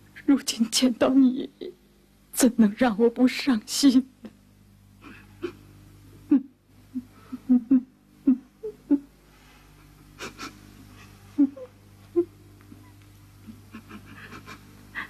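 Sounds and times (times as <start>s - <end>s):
women sobbing and whimpering: 10.2s - 10.7s, 11.3s - 12.4s, 13.5s - 15.0s.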